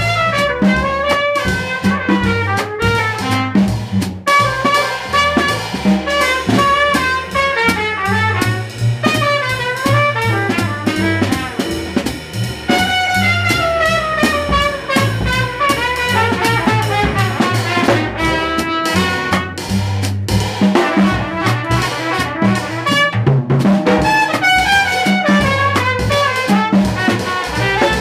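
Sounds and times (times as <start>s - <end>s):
brass horn line: 0.0s - 19.8s, 20.7s - 28.0s
drum kit with ride cymbal: 0.0s - 28.0s
walking double bass: 0.0s - 28.0s.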